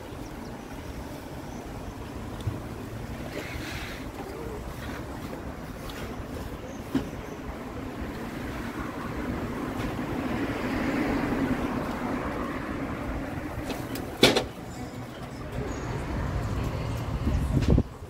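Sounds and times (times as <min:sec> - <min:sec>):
vehicle passing: 0:07.6 - 0:17.8.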